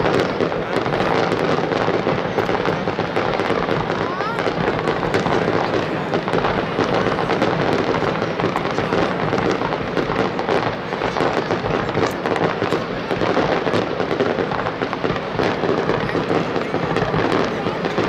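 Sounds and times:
fireworks cracking and crackling: 0:00.0 - 0:18.0.

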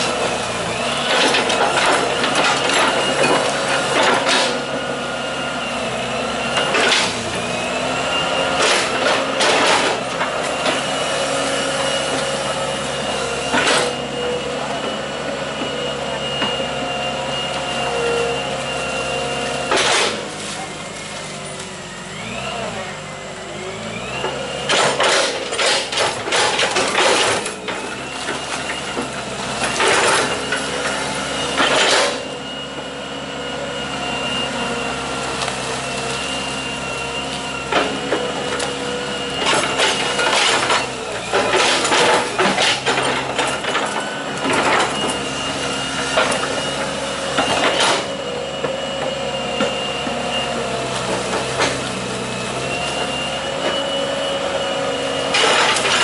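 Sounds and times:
excavator diesel engine whine: 0:00.0 - 0:56.0.

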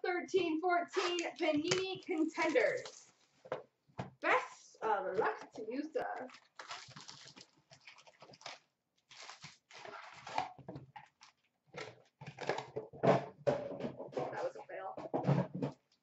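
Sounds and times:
foil packs rustling: 0:06.2 - 0:11.5
cardboard boxes tearing: 0:08.4 - 0:10.5.

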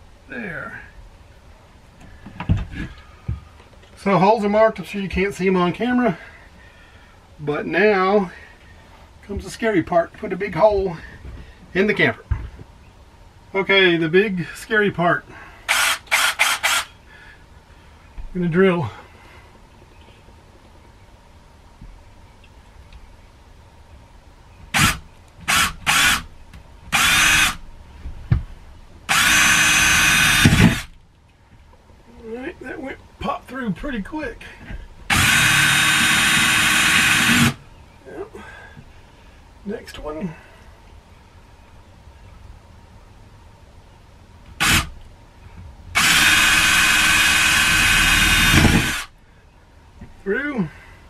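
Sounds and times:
cordless drill boring: 0:15.7 - 0:16.9, 0:24.7 - 0:26.3, 0:26.9 - 0:27.6, 0:29.1 - 0:30.9, 0:35.1 - 0:37.6, 0:44.6 - 0:44.9, 0:46.0 - 0:49.1.

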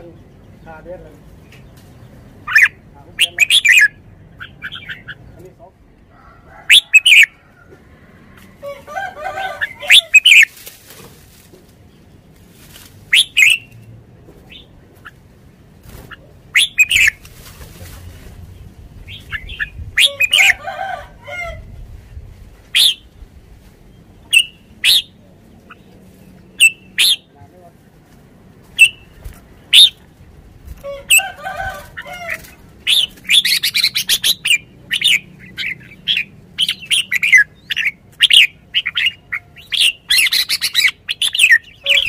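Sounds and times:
bird singing bright phrases: 0:00.0 - 0:05.9, 0:09.6 - 0:10.6, 0:13.0 - 0:13.9, 0:16.5 - 0:17.2, 0:18.5 - 0:20.6, 0:22.7 - 0:23.2, 0:23.8 - 0:27.4, 0:28.7 - 0:30.0, 0:32.2 - 0:42.0.

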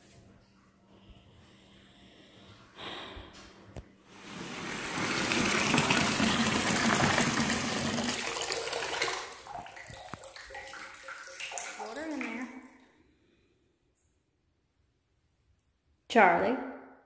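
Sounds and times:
tap water rushing into bathtub: 0:04.1 - 0:12.9.

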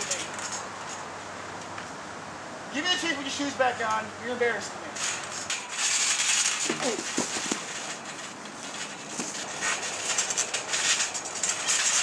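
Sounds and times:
scuffling and crackling: 0:00.0 - 0:02.0, 0:04.9 - 0:12.0.

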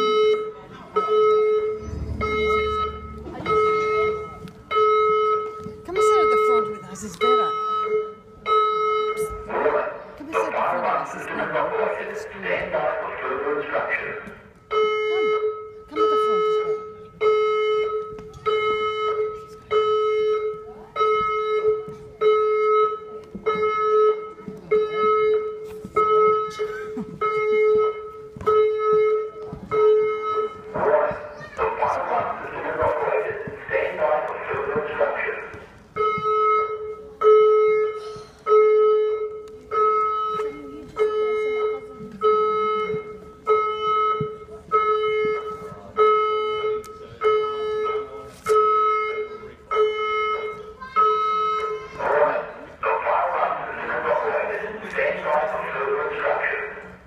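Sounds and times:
fire alarm beeping: 0:00.0 - 0:57.0.

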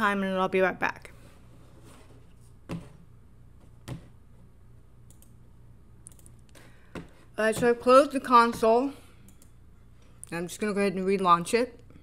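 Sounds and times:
low steady hum: 0:00.0 - 0:12.0
computer mouse clicks: 0:05.0 - 0:05.4, 0:06.0 - 0:06.6, 0:09.3 - 0:09.6.

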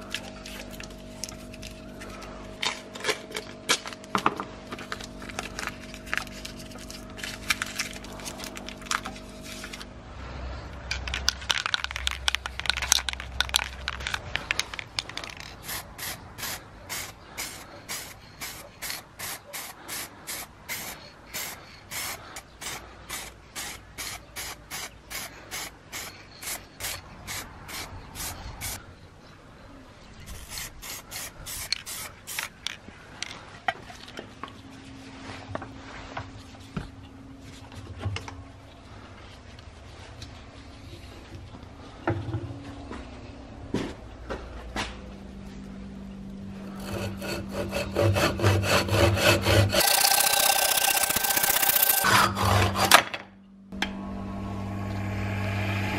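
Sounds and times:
steady hum: 0:00.0 - 0:28.8, 0:30.7 - 0:55.9
paper crinkling and rustling: 0:04.7 - 0:09.9
spray paint can hissing: 0:15.4 - 0:28.8, 0:30.4 - 0:32.5.

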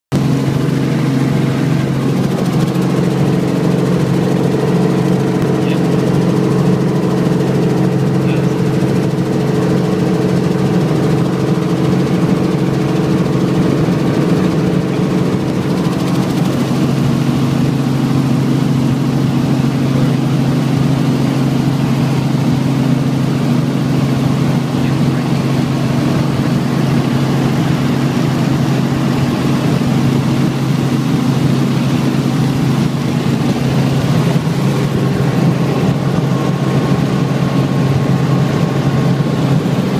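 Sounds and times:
helicopter engine and rotors: 0:00.1 - 0:39.9.

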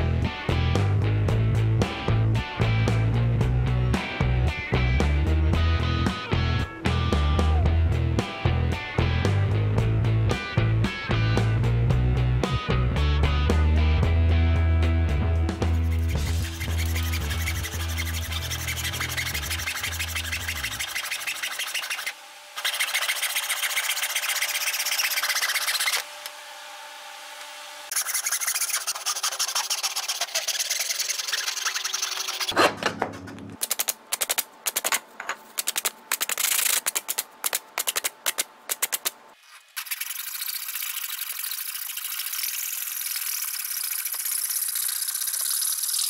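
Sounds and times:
hacksaw cutting wood: 0:15.8 - 0:26.1, 0:27.9 - 0:33.8.

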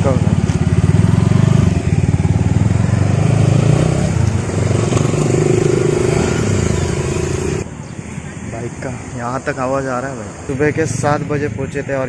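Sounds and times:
motorcycle engines revving: 0:00.0 - 0:07.7.

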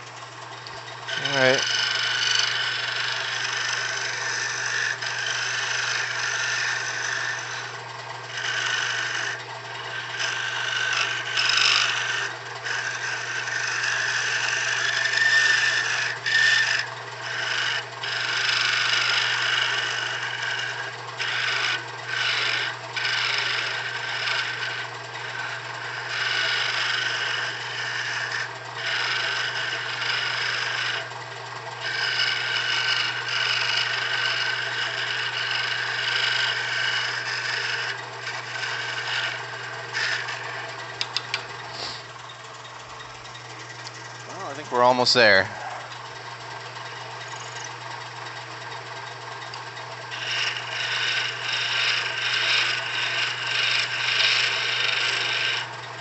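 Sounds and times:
lathe motor hum: 0:00.0 - 0:56.0
lathe tool scraping wood: 0:00.0 - 0:56.0.

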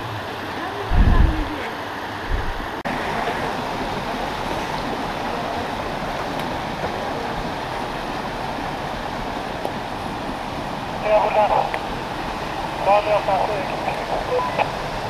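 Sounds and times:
stream running over rocks: 0:00.0 - 0:15.0.

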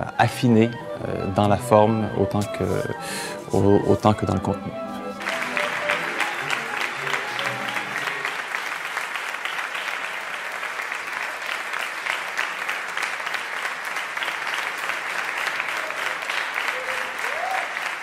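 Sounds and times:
ensemble music held notes: 0:00.0 - 0:09.0
audience applauding: 0:00.5 - 0:18.0.

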